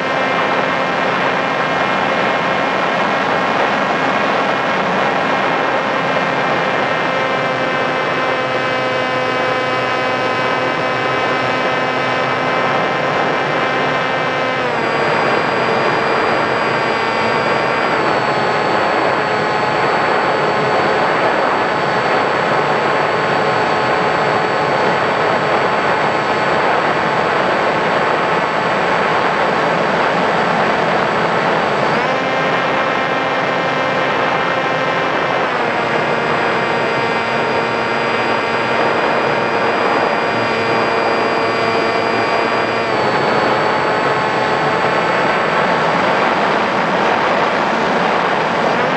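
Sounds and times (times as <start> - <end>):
electric motor whine: 0.0 - 48.9.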